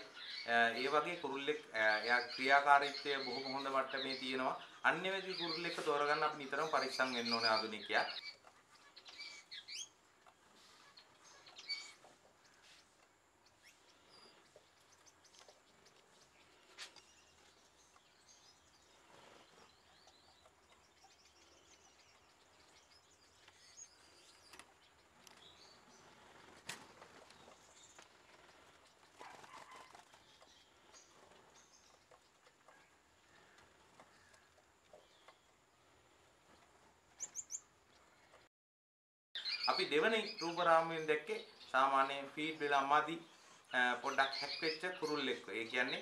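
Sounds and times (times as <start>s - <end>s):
finches chirping: 0.0s - 26.6s, 36.6s - 38.5s, 39.4s - 46.0s.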